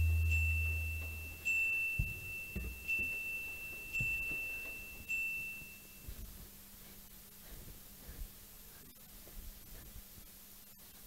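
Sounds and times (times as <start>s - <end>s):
dull low thumps: 0.0s - 1.4s
high chime ringing: 0.0s - 2.4s.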